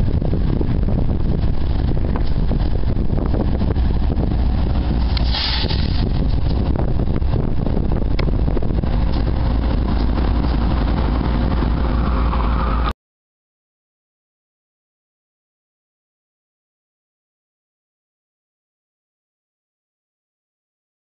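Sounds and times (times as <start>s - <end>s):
locomotive engine rumble: 0.0s - 12.9s.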